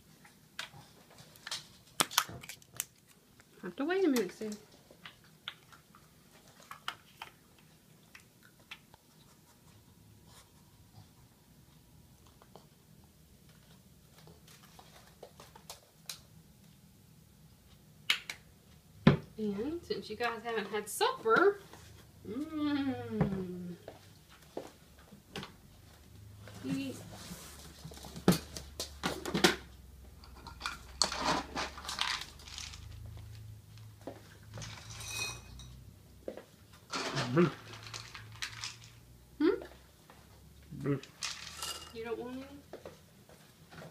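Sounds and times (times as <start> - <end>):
kibble rattling in a bin: 30.9 - 33.1, 36.9 - 39.0, 41.1 - 42.0.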